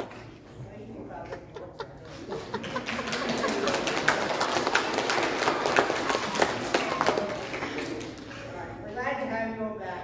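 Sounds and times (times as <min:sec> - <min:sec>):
children clapping and cheering: 0:02.6 - 0:08.4.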